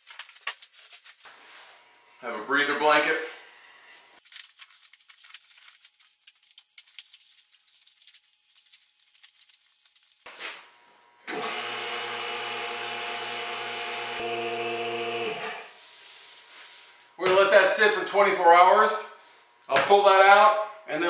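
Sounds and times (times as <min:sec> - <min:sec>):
plastic sheeting crinkling: 0:00.0 - 0:01.3, 0:04.2 - 0:10.3
vacuum pump humming and hissing: 0:09.6 - 0:17.2.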